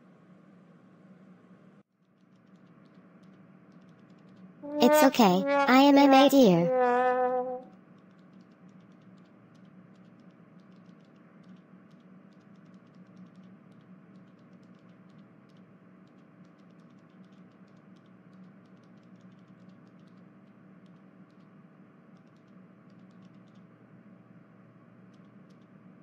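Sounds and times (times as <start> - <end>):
faint irregular clicking: 2.0 - 4.4, 8.0 - 23.8, 25.0 - 25.8.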